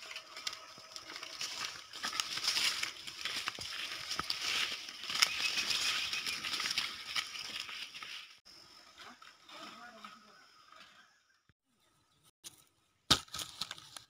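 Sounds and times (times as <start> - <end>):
footsteps crunching on dirt path: 0.0 - 8.4
bodies brushing through undergrowth: 0.0 - 9.0.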